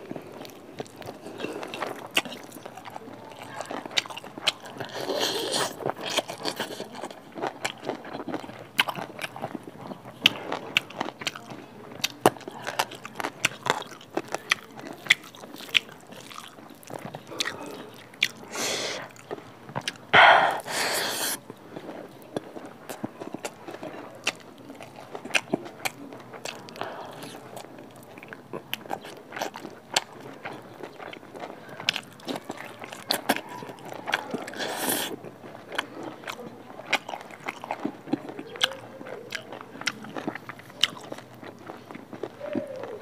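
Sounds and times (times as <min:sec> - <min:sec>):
chewing and lip smacks: 0:00.0 - 0:43.0
fingers squelching rice: 0:34.0 - 0:35.2.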